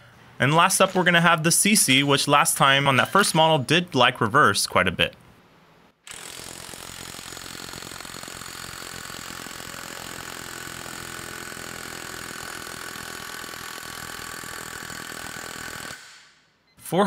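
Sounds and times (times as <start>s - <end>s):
impact wrench hammering: 6.1s - 16.4s.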